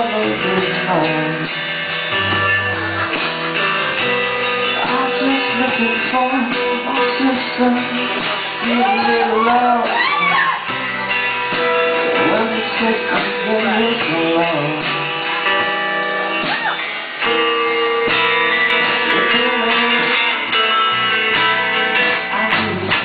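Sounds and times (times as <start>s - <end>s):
person singing: 0.0s - 1.7s, 4.6s - 11.2s, 11.8s - 15.7s, 16.4s - 21.2s
guitars playing sustained chords: 0.0s - 23.0s.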